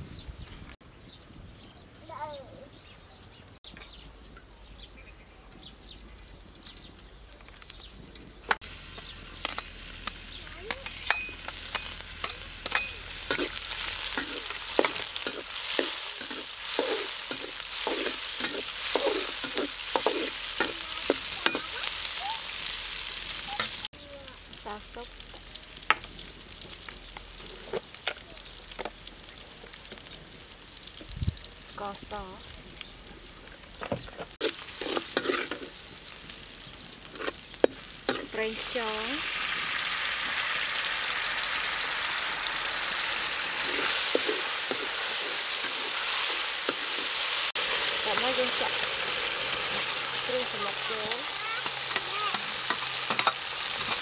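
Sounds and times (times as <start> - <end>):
garlic sizzling in hot oil: 6.3 - 54.0
metal ladle scraping a wok: 11.1 - 21.8, 34.4 - 35.8, 43.5 - 54.0.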